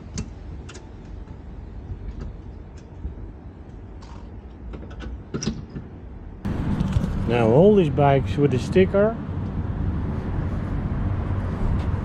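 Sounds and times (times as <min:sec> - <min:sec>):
low rumble: 0:06.4 - 0:12.0.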